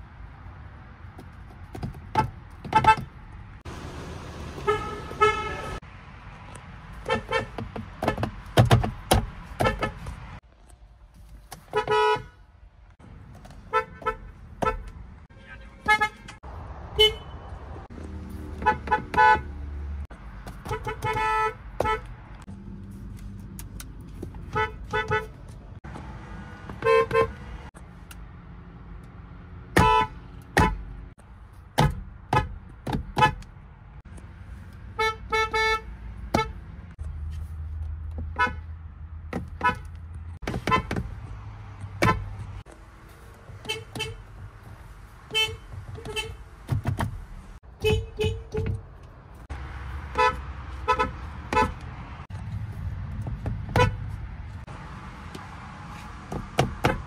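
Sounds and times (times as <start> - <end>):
car horns short beeps: 47.8 - 48.8.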